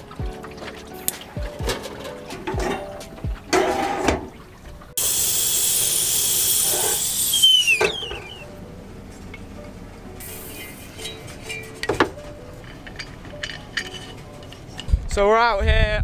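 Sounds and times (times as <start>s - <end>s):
steam rushing: 5.0s - 8.4s, 10.2s - 11.0s
kettle whistling: 5.0s - 8.5s.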